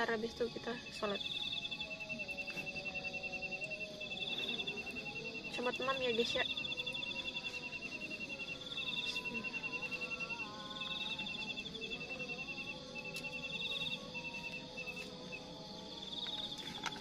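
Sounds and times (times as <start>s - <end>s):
high crickets trilling: 0.0s - 17.0s
low crickets trilling: 0.0s - 17.0s.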